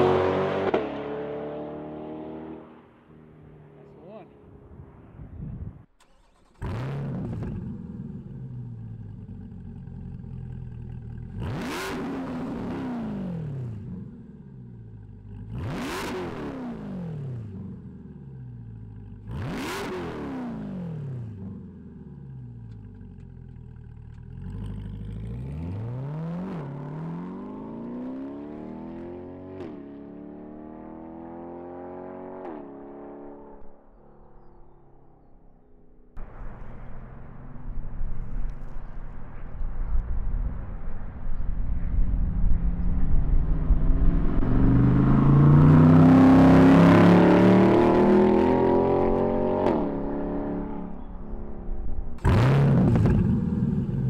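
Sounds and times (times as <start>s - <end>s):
car accelerating with upshifts: 0.0s - 3.7s, 6.0s - 33.7s, 43.4s - 54.0s
car engine revving: 0.0s - 3.9s, 6.0s - 33.6s, 42.8s - 54.0s
car engine starting and idling: 5.8s - 15.9s, 21.1s - 26.8s.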